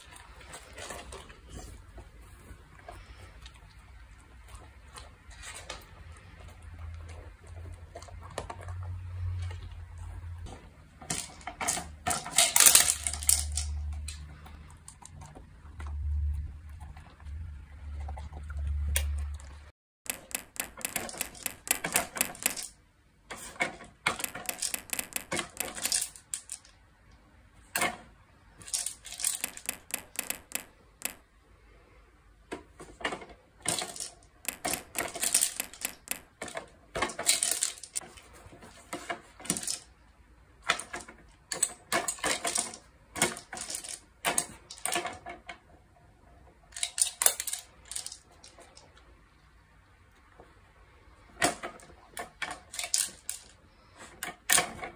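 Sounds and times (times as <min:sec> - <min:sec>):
dog crunching treats: 0:00.0 - 0:10.1
treats rattling in plastic toy: 0:11.0 - 0:15.2, 0:20.1 - 0:26.8, 0:28.6 - 0:31.2, 0:33.0 - 0:39.9, 0:40.7 - 0:45.4, 0:46.6 - 0:48.9, 0:51.4 - 0:54.9.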